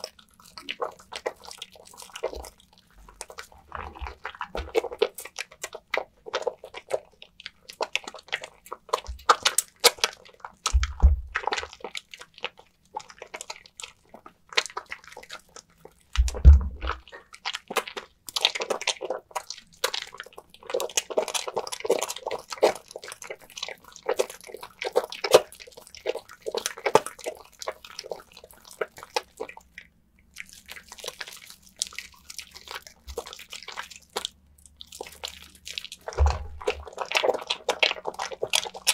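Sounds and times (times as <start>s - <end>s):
wet soap squishing into lather: 0.0s - 38.9s
dull low bumps: 36.1s - 36.8s.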